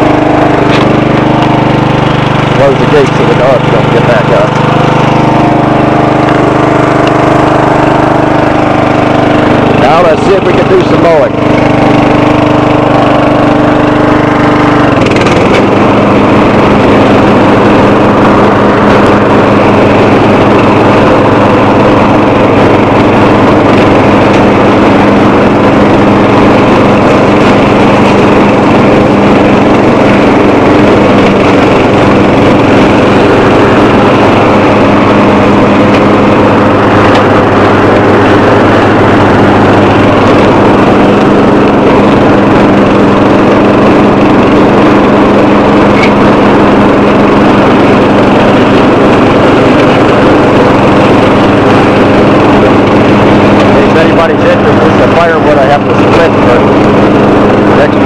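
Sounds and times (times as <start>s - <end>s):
lawn tractor engine running: 0.0s - 58.0s.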